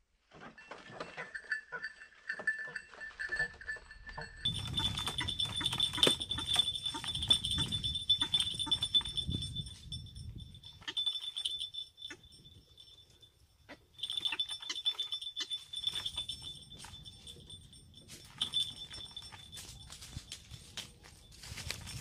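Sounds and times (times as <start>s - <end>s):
waterhens calling: 4.5s - 9.1s.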